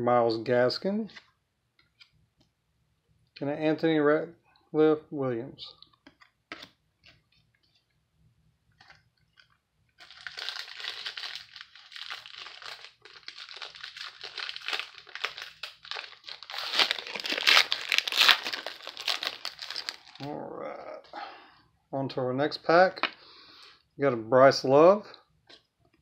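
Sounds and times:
foil wrapper crinkling and tearing: 0:09.4 - 0:20.4.

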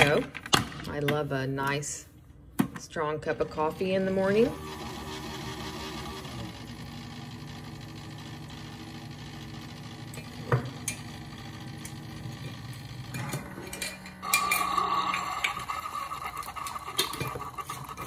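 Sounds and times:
coffee maker humming: 0:03.3 - 0:18.0
pump whine: 0:04.0 - 0:18.0
coffee streaming into mug: 0:14.2 - 0:18.0.

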